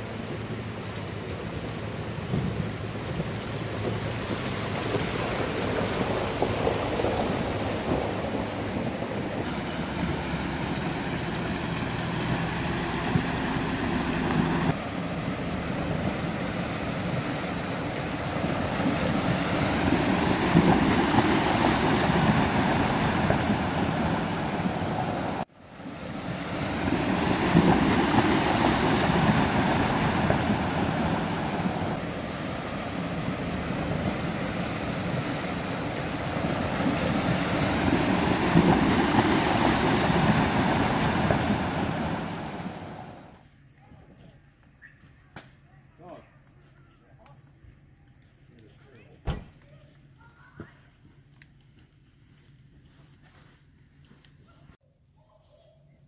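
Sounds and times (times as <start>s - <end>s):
vehicle engines running: 0.0s - 43.4s
water rushing and splashing: 0.0s - 43.4s.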